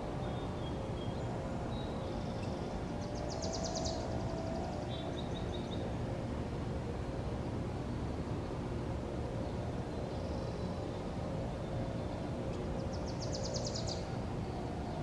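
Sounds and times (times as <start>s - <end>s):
distant birds chirping: 0.0s - 6.2s, 9.2s - 15.0s
outdoor background rumble: 0.0s - 15.0s.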